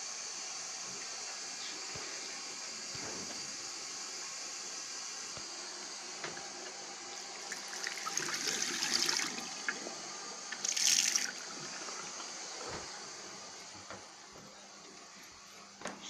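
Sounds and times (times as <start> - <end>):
tap water running and splashing: 5.3 - 15.2.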